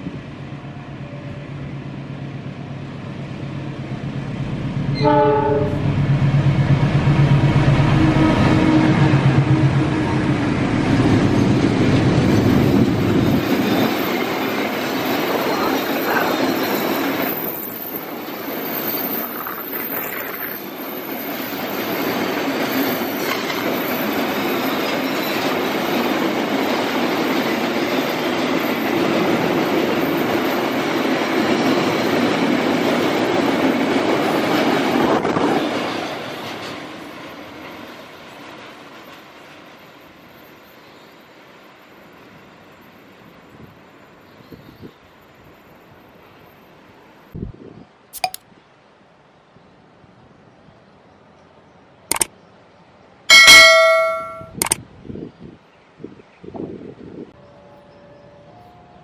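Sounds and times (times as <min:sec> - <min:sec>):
diesel locomotive hum: 0:00.0 - 0:18.7
steel wheels rumbling on rails: 0:00.0 - 0:19.4.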